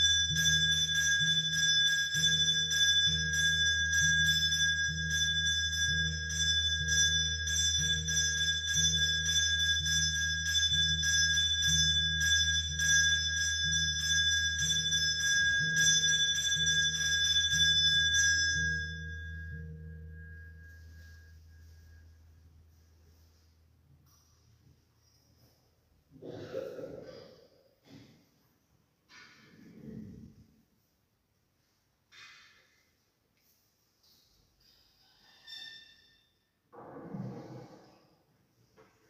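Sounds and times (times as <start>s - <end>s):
brass hand bell ringing: 0.0s - 22.4s
low steady hum: 0.0s - 27.1s.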